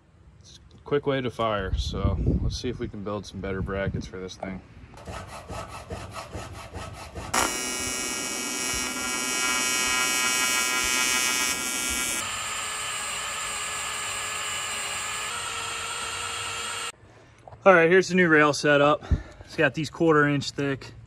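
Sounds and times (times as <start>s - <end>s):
file rasping on metal: 5.0s - 7.8s
arc welder buzzing: 7.3s - 17.0s
cordless drill boring: 7.3s - 17.0s.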